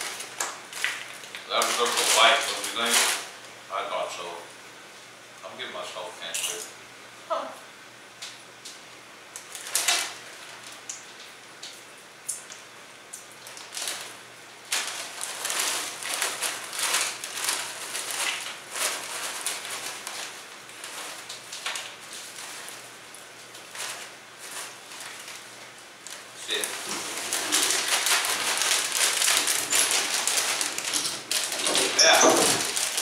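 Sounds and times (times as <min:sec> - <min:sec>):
foil chip bag crinkling: 0:00.0 - 0:03.3, 0:09.4 - 0:11.8, 0:13.2 - 0:33.0.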